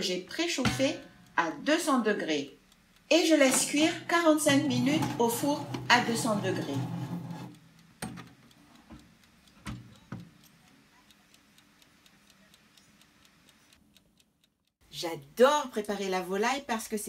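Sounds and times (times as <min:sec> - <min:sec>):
oven timer ticking: 0:00.0 - 0:14.7
dish knocking on wire rack: 0:00.7 - 0:01.2, 0:03.4 - 0:08.2
glass oven door shutting: 0:03.5 - 0:08.3.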